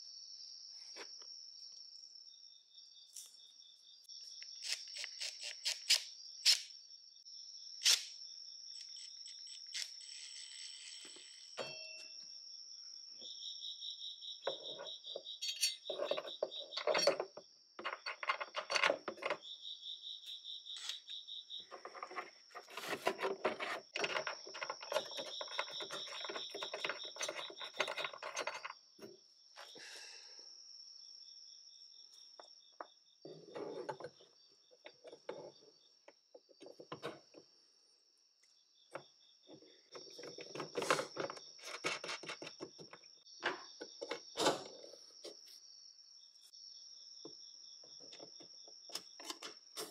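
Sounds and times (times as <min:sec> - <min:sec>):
crickets chirping: 0:00.0 - 0:49.9
metallic clinking and rattling: 0:15.4 - 0:19.4.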